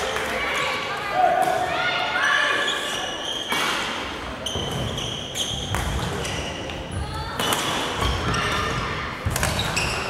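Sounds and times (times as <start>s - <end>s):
sneakers squeaking on wooden floor: 4.4s - 6.7s, 8.0s - 10.0s.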